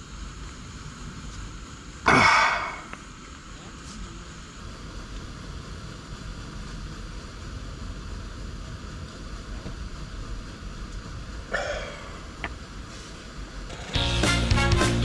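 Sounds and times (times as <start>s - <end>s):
low rushing noise: 4.1s - 15.0s.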